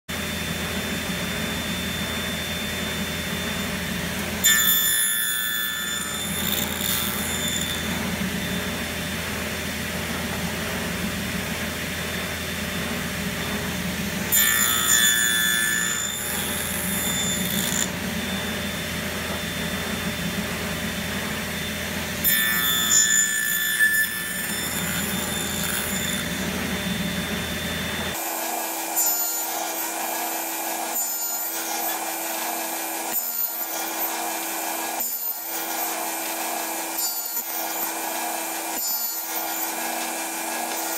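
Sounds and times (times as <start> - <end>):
table saw running: 0.1 - 40.9
saw blade cutting wood: 3.4 - 9.2, 14.3 - 18.6, 22.2 - 26.9, 28.0 - 40.9.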